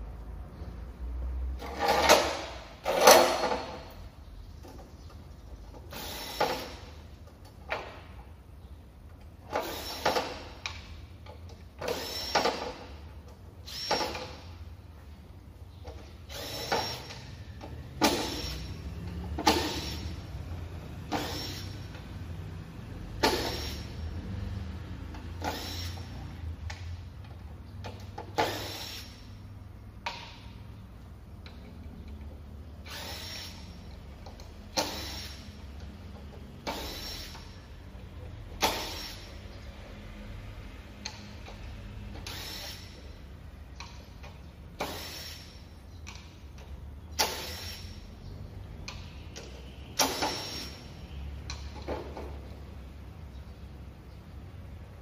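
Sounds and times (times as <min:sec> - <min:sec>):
impact driver driving screws: 0:11.8 - 0:12.8, 0:13.6 - 0:14.5, 0:16.3 - 0:17.3, 0:21.1 - 0:21.8, 0:23.2 - 0:23.9, 0:25.4 - 0:26.2, 0:28.1 - 0:29.2, 0:32.8 - 0:35.5, 0:36.6 - 0:37.6, 0:42.2 - 0:43.1, 0:44.8 - 0:45.6.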